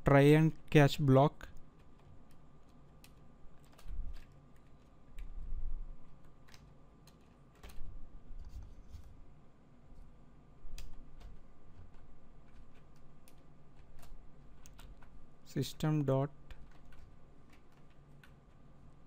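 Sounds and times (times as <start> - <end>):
computer keyboard keys clicking: 1.5 - 5.4, 6.0 - 7.9, 10.7 - 15.2, 16.4 - 19.0.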